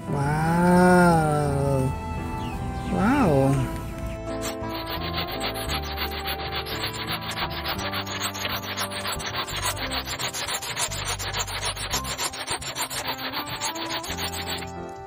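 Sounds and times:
hand saw cutting wood: 4.3 - 15.0.

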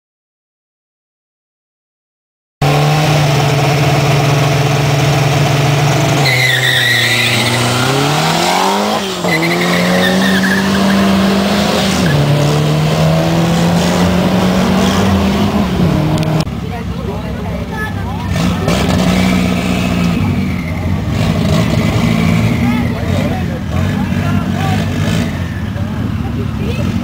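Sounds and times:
racing car engine revving: 2.6 - 16.6, 17.7 - 27.0
tires squealing: 5.9 - 16.4, 17.9 - 27.0.

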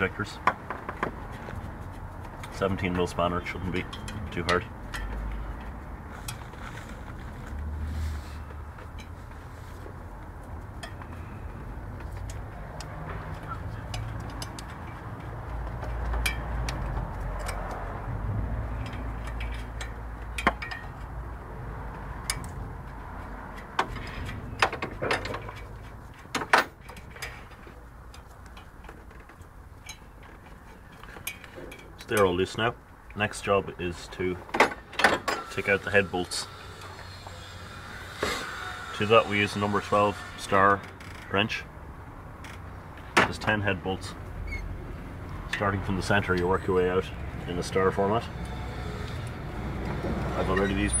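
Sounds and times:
spanner clinking on metal nuts: 3.8 - 5.3, 13.8 - 17.8, 18.7 - 21.2, 23.5 - 32.4, 34.6 - 36.1.

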